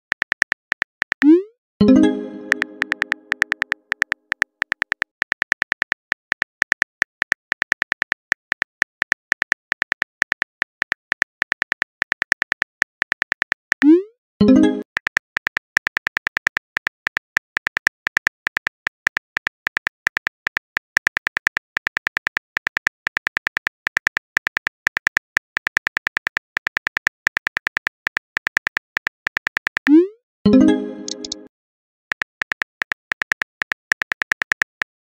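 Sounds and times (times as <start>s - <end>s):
phone keyboard tap clicks: 2.5s - 11.2s, 31.0s - 31.4s.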